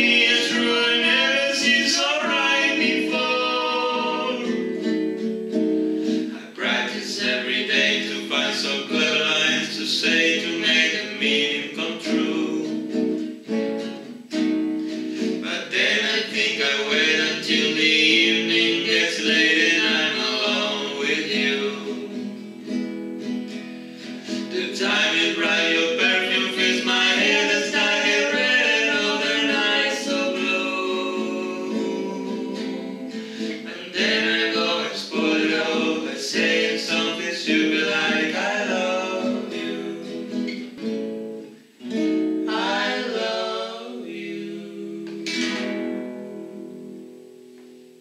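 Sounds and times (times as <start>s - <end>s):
man singing: 0.0s - 4.9s, 6.3s - 13.0s, 15.2s - 22.5s, 24.2s - 40.6s
acoustic guitar: 0.0s - 48.0s.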